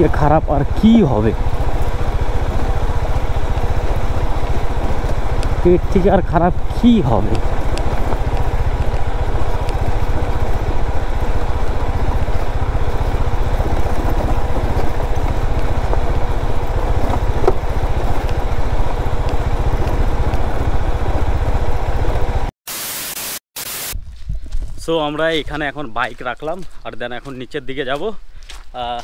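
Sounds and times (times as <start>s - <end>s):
motorcycle engine rumbling: 0.0s - 22.5s.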